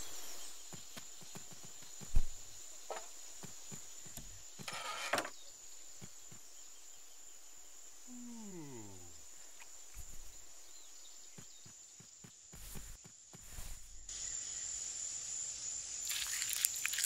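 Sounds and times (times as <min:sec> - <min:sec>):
wooden door scraping shut: 0:04.6 - 0:05.4.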